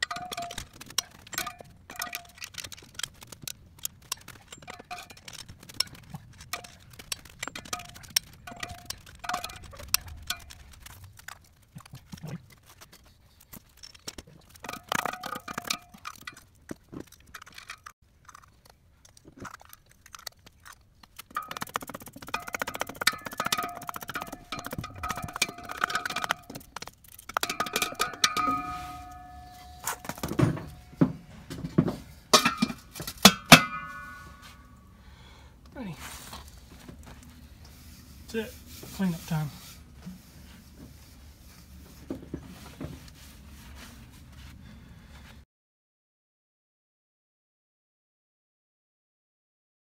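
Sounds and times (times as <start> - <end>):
metal tools knocking on lug nuts: 0.0 - 2.8, 4.2 - 10.6, 21.3 - 34.8
metal covers clinking: 0.0 - 11.0, 13.5 - 17.9, 21.2 - 34.9.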